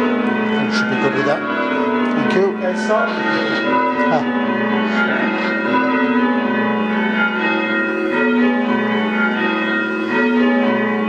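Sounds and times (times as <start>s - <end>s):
church bells ringing changes: 0.0s - 11.0s.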